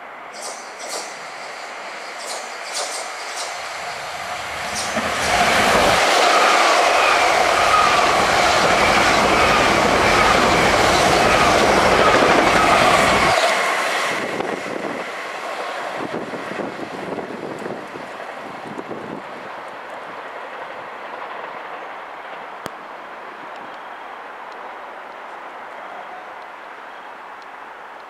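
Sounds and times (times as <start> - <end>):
wavering train whine: 0.0 - 27.0
train wheels rushing on rail: 0.3 - 26.5.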